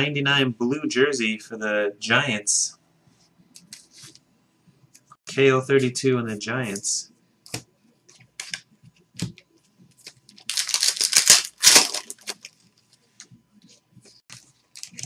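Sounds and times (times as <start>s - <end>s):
card packaging rustling: 9.9s - 12.8s, 14.3s - 15.0s.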